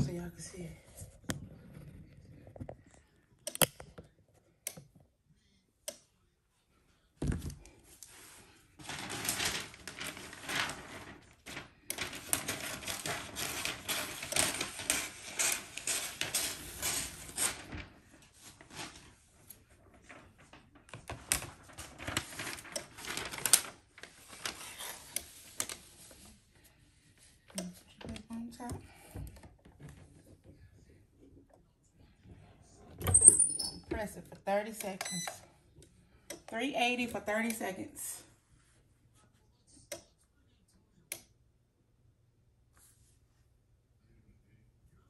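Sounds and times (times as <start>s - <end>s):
stiff paper rustling and crackling: 7.8s - 26.7s.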